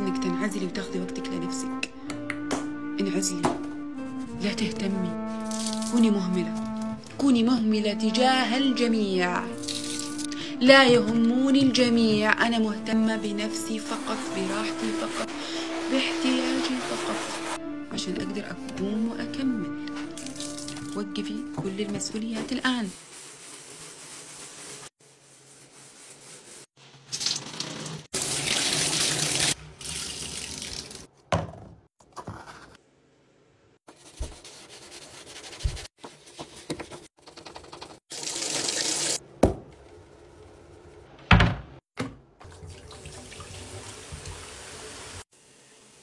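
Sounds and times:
sponge scrubbing tub: 8.1s - 17.6s, 19.9s - 30.1s, 33.9s - 39.2s
tap water splashing into bathtub: 42.0s - 44.6s.

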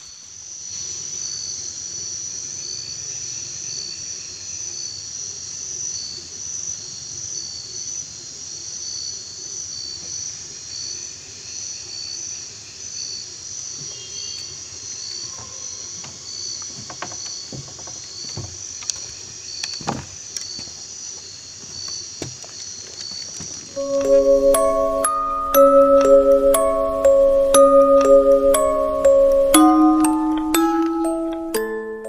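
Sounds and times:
insects trilling: 0.5s - 23.8s
footsteps on wooden planks: 15.4s - 23.8s.

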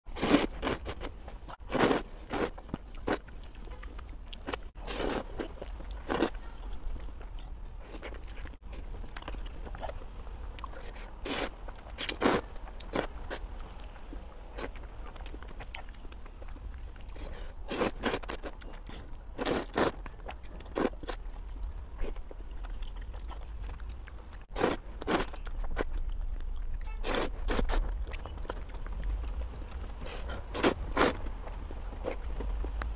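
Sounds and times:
person slurping noodles: 0.1s - 0.9s
chewing: 0.1s - 32.9s.

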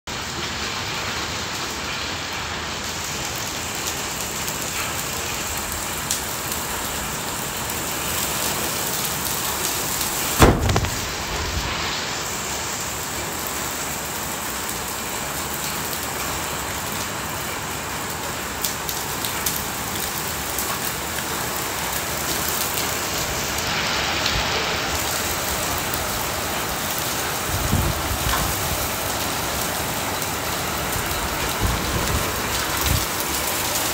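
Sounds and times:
heavy rain and hail on concrete: 0.1s - 33.9s
soft low bump: 10.4s - 11.7s
sharp thump: 10.4s - 11.8s.

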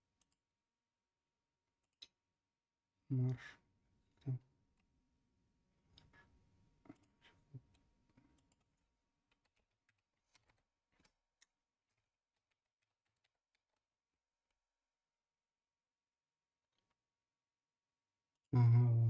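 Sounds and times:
faint keyboard typing: 6.9s - 13.9s.

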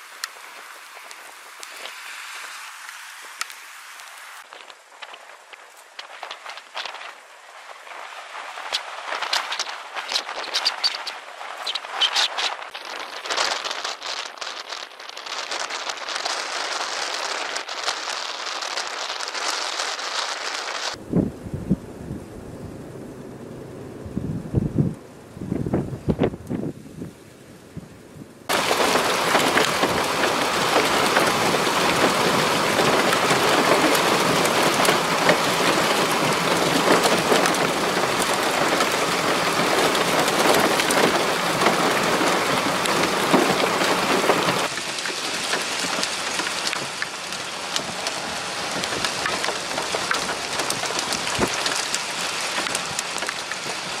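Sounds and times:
heavy rain on pavement: 0.0s - 54.0s
hailstones ticking: 4.4s - 21.0s, 28.5s - 54.0s.

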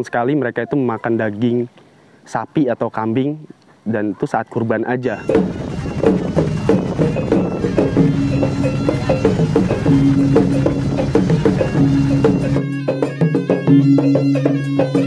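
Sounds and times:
deep bass: 5.2s - 12.8s
low drone notes: 5.2s - 13.0s
steady percussion beat: 5.2s - 15.0s.

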